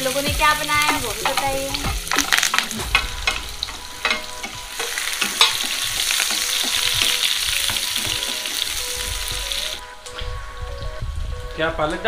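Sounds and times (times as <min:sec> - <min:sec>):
onions sizzling in a pan: 0:00.0 - 0:12.0
spatula scraping a pan: 0:00.8 - 0:08.8.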